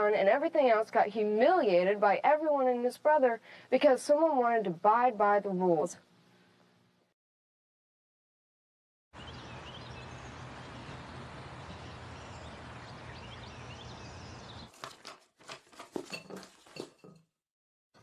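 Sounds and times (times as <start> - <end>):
birds chirping: 9.2 - 14.8.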